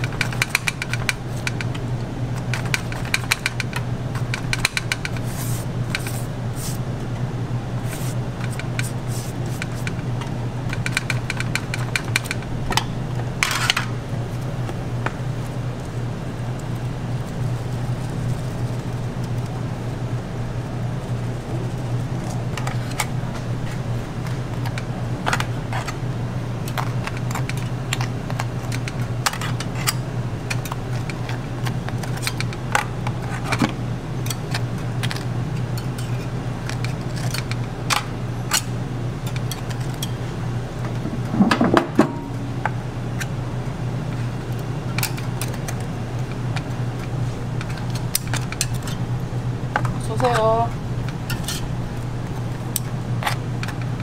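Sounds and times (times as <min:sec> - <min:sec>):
steady low hum: 0:00.0 - 0:54.0
utensils clattering: 0:07.8 - 0:14.0, 0:44.9 - 0:54.0.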